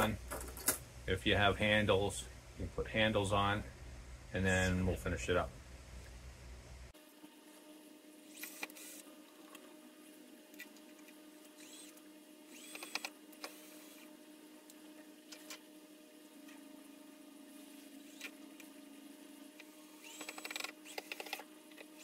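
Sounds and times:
cordless drill driving screws: 11.6 - 14.0, 19.9 - 21.4.

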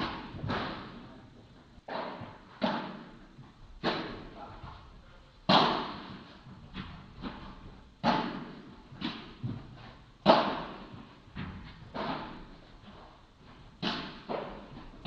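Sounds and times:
ball bouncing: 0.0 - 1.2, 1.8 - 4.8, 5.5 - 15.0
padel ball knocked by rackets: 1.9 - 3.2, 5.5 - 6.2, 8.0 - 9.6.

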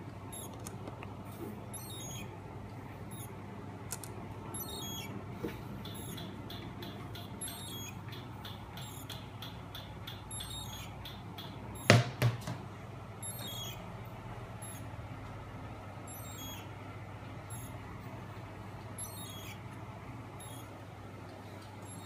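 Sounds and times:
low electrical hum: 0.0 - 22.0
faint high-pitched chirps: 0.3 - 0.6, 1.7 - 2.4, 3.1 - 3.4, 4.5 - 5.1, 5.8 - 11.9, 13.2 - 13.9, 14.6 - 14.9, 16.0 - 16.7, 17.4 - 17.8, 19.0 - 19.7, 20.3 - 20.8, 21.8 - 22.0
sharp knocks: 11.1 - 12.6.

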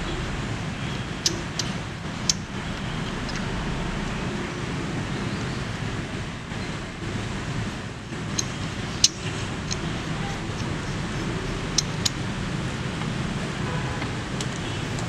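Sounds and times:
low background rumble: 0.0 - 13.5
sharp light clicks of metal parts: 1.2 - 2.4, 8.2 - 12.3.

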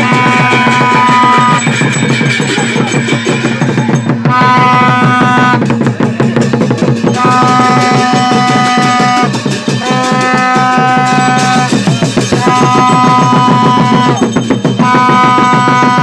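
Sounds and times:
plastic horn blowing: 0.0 - 1.8, 4.2 - 5.7, 7.1 - 16.0
cymbals clashing: 0.0 - 16.0
drum beating fast rhythm: 0.0 - 16.0.

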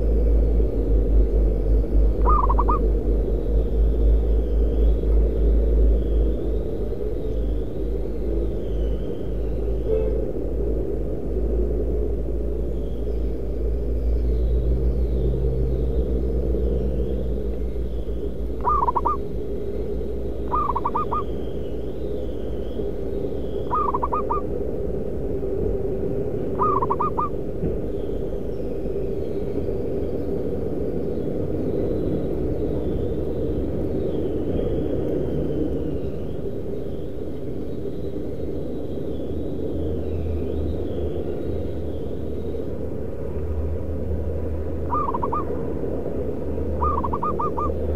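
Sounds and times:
steady low rumble: 0.0 - 47.9
dove cooing: 2.2 - 2.9, 18.6 - 19.3, 20.4 - 21.3, 23.7 - 24.5, 26.5 - 27.4, 44.9 - 45.5, 46.8 - 47.8.

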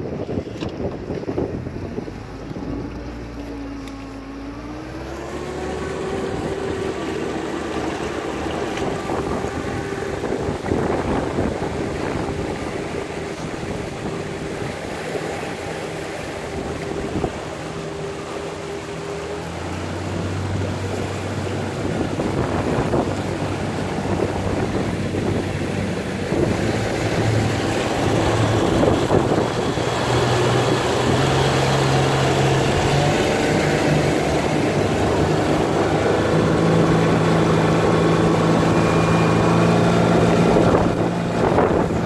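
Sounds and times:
boat engine running: 0.0 - 42.0
water rushing: 0.0 - 42.0
wind on microphone: 0.0 - 42.0.

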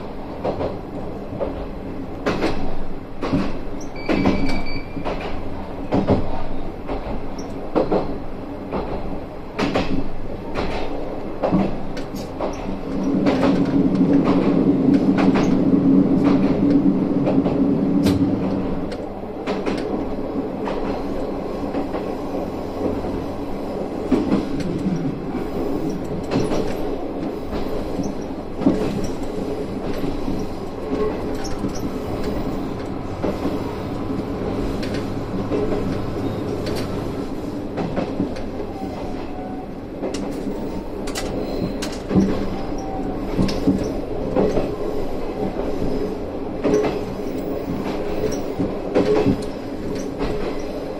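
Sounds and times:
railcar engine droning: 12.1 - 50.9
wheels clicking over rail joints: 24.0 - 37.0.

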